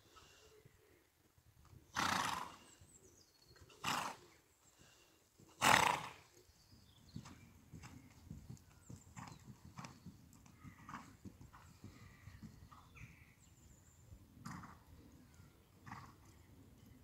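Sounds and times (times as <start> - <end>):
horse hoofbeats on sand: 6.8 - 13.2.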